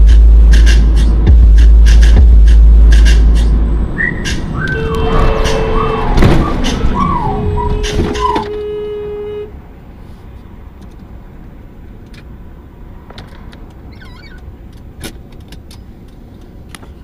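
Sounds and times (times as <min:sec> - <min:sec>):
car rumbling on road: 0:00.0 - 0:17.0
held pitched tone: 0:03.4 - 0:09.5.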